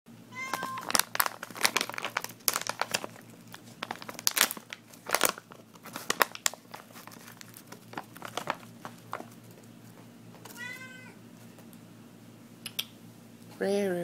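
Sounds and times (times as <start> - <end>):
plastic bag crinkling: 0.4 - 10.0.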